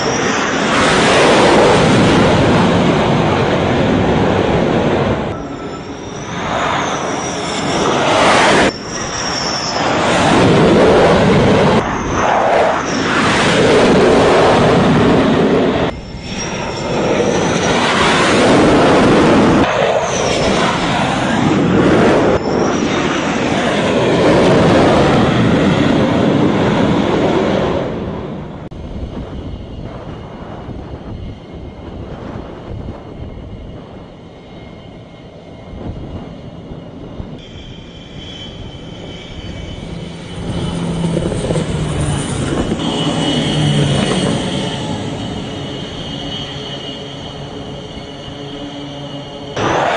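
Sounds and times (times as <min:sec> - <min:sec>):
jet engines roaring: 0:00.0 - 0:49.9
turboprop aircraft passing low: 0:00.0 - 0:49.9.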